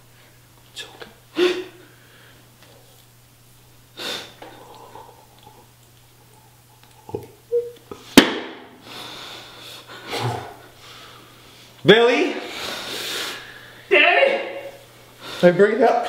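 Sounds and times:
man breathing and sniffing loudly: 0:04.0 - 0:05.6, 0:08.0 - 0:11.8, 0:12.4 - 0:13.9.

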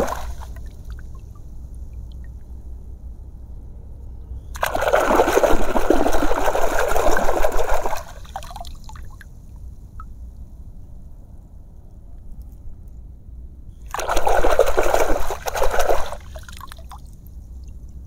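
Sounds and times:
hand splashing in water: 0:00.0 - 0:00.6, 0:04.6 - 0:08.6, 0:13.9 - 0:17.0.

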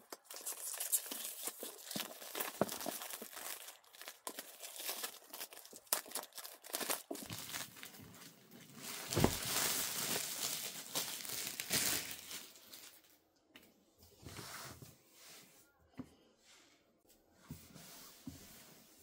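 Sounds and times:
packaging crinkling and rustling: 0:00.0 - 0:13.2
thud: 0:09.1 - 0:09.6.

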